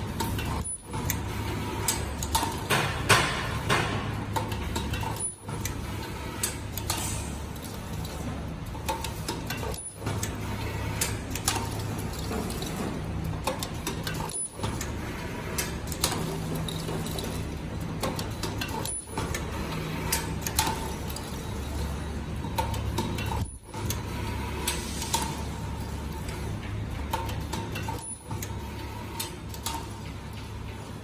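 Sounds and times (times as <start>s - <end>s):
mechanical clicks and clacks: 0.0s - 31.0s.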